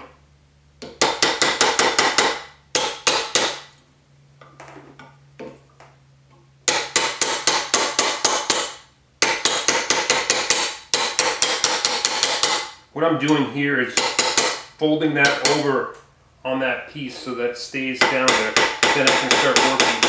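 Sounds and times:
mallet striking metal: 0:18.0 - 0:20.0.

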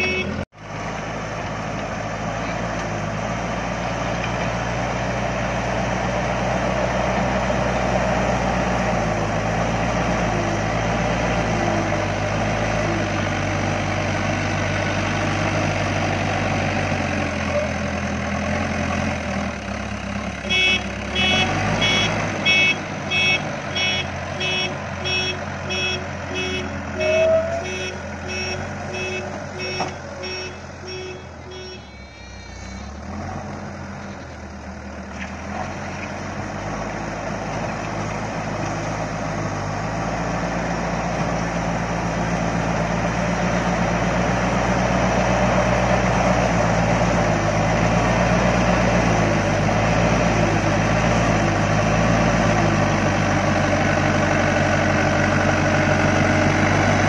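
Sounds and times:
reversing alarm beeping: 0:00.0 - 0:00.4, 0:20.6 - 0:33.0
diesel engine running hard: 0:00.0 - 0:57.0.

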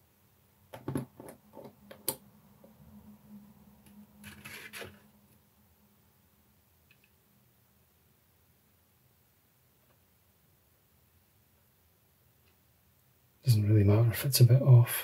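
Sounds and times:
plastic rubbing scrape: 0:04.2 - 0:05.1.

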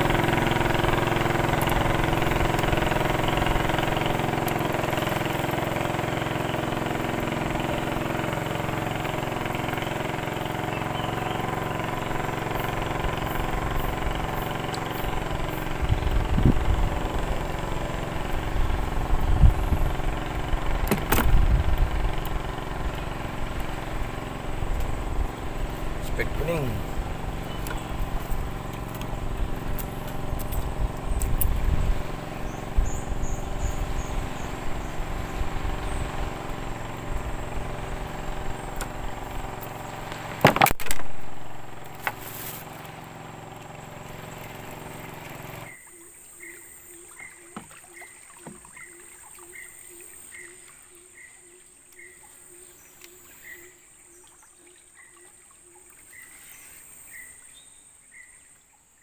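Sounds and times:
loud engine knock: 0:00.0 - 0:26.1
engine running: 0:00.0 - 0:54.2
short chirping call: 0:10.4 - 0:12.8.

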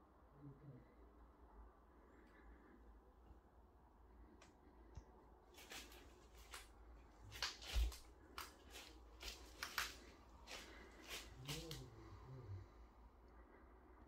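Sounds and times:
scuffs and rustles of movement: 0:05.5 - 0:12.5.

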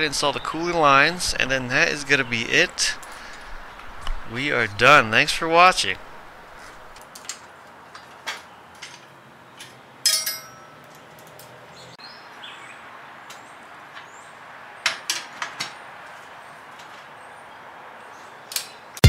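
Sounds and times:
ringing metal clink: 0:10.0 - 0:10.8.

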